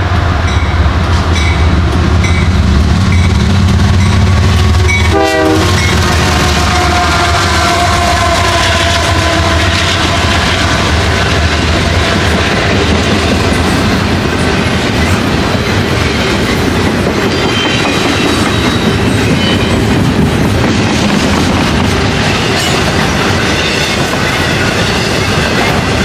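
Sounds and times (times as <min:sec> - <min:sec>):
train horn: 0:04.2 - 0:12.3
train wheels clattering over rails: 0:08.6 - 0:26.0.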